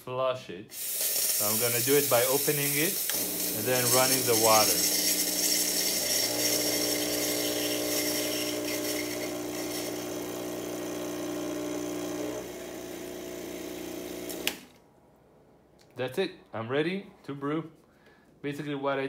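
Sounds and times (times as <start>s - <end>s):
steam wand hissing and spitting: 0.7s - 10.1s
espresso machine pump humming: 0.7s - 14.7s.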